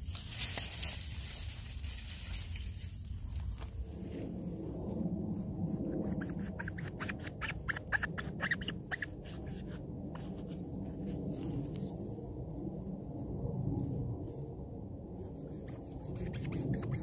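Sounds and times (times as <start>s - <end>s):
knife squeaking through mushroom flesh: 5.9s - 9.6s.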